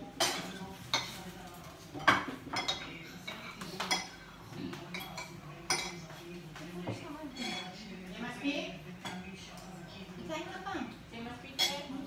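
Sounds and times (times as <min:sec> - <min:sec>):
cutlery clinking on plates: 0:00.0 - 0:08.0, 0:08.9 - 0:09.8, 0:11.5 - 0:12.0.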